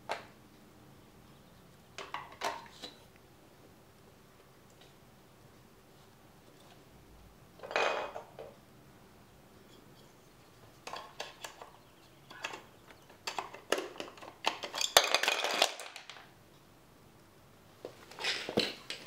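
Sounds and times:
plastic bricks clattering: 0:12.3 - 0:16.3.

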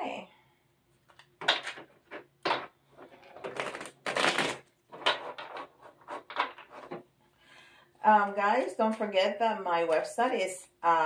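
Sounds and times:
cards shuffled by hand: 0:03.0 - 0:07.0.

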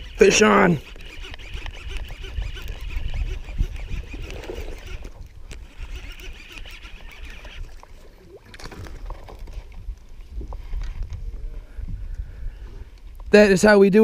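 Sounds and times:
fishing reel whirring: 0:00.0 - 0:08.1
low wind rumble: 0:00.0 - 0:13.4.

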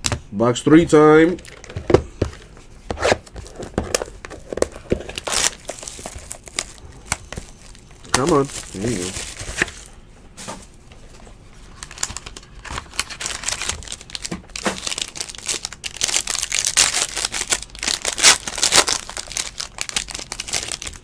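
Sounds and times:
foil wrapper tearing and crinkling: 0:03.4 - 0:09.8, 0:11.8 - 0:21.0.

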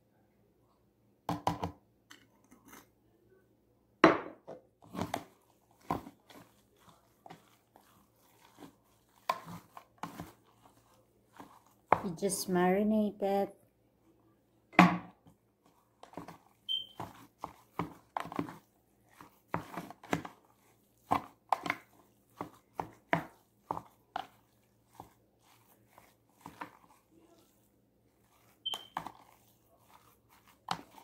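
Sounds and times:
spoon scraping plastic bowl: 0:01.4 - 0:03.0, 0:04.8 - 0:12.5, 0:15.7 - 0:31.0
brief high squeak: 0:16.7 - 0:17.0, 0:28.6 - 0:29.0.

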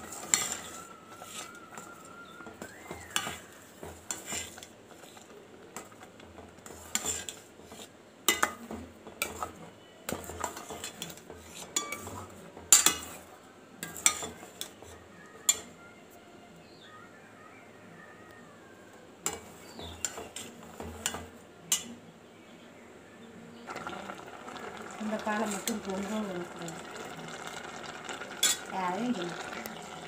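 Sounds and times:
spoon scraping in pot: 0:00.0 - 0:15.7, 0:19.2 - 0:21.9, 0:23.7 - 0:30.0.

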